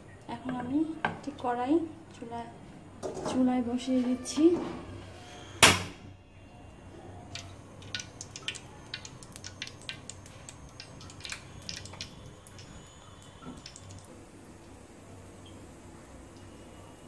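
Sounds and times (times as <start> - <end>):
hot iron pan crackling: 7.3 - 14.1.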